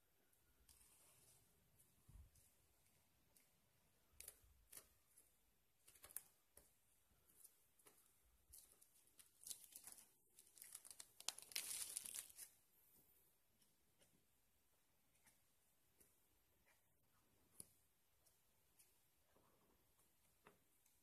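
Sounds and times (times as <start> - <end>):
plastic shrink-wrap crinkling: 8.6 - 12.6.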